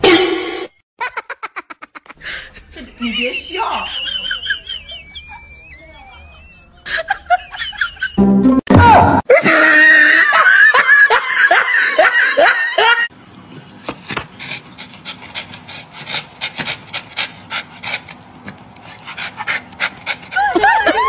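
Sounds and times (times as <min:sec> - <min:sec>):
dog panting: 0:13.2 - 0:21.0.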